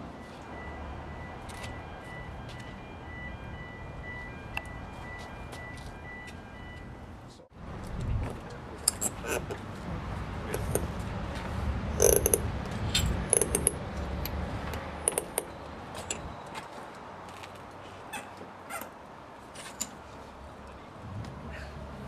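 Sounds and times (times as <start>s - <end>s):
metal clamps clicking and creaking: 8.8s - 9.6s, 10.5s - 10.9s, 12.0s - 13.8s, 14.7s - 16.3s.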